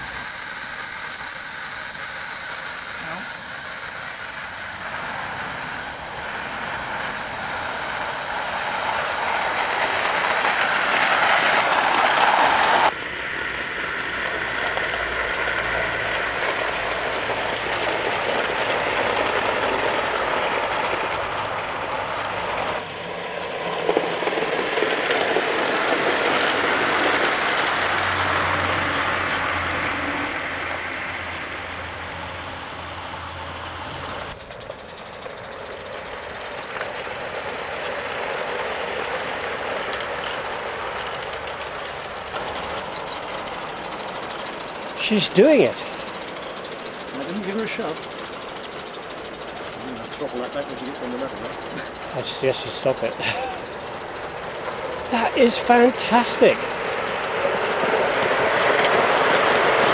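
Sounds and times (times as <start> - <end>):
steam locomotive exhaust hissing: 0.0 - 59.9.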